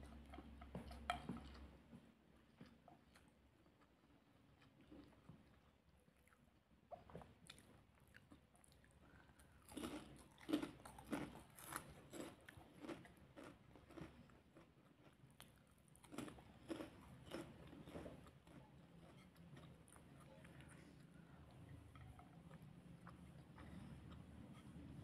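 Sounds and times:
person chewing with crunching: 4.6s - 25.0s.

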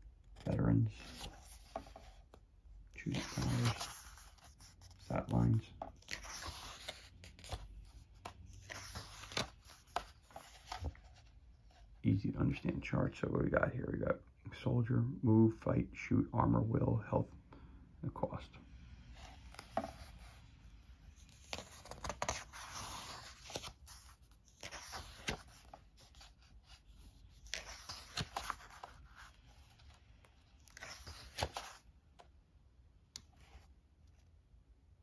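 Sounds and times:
pages turning: 0.3s - 2.4s, 3.0s - 11.8s, 19.1s - 20.4s, 21.1s - 32.3s.

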